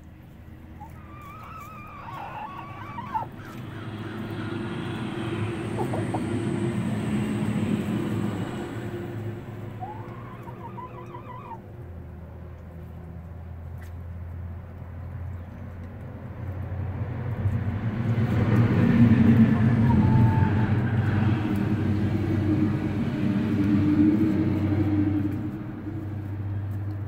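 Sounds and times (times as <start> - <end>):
hens quavering calls: 0.7 - 6.9, 8.7 - 11.6, 19.2 - 21.5
rushing noise: 3.9 - 11.2.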